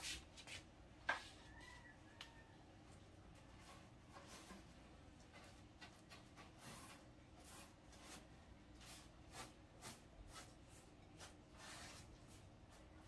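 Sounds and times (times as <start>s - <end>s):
paintbrush swishing on wood: 0.0s - 1.3s, 6.1s - 13.0s.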